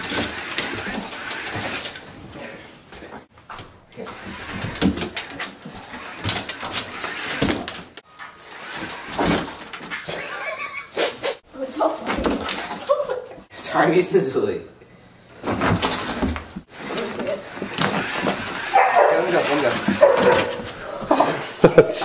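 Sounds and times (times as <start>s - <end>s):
slot cars whirring: 16.6s - 20.7s.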